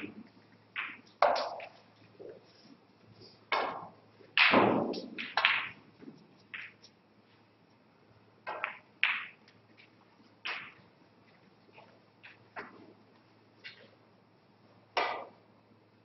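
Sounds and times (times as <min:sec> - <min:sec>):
snooker balls clacking: 0:00.0 - 0:02.4, 0:03.5 - 0:07.0, 0:08.4 - 0:11.0, 0:11.7 - 0:13.0, 0:14.9 - 0:15.4
faint steady hum: 0:00.0 - 0:16.0.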